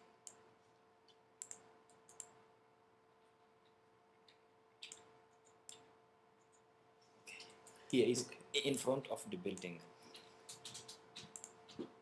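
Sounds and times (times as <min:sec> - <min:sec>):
computer mouse clicks: 0:01.1 - 0:02.4, 0:03.6 - 0:06.7, 0:09.5 - 0:12.0.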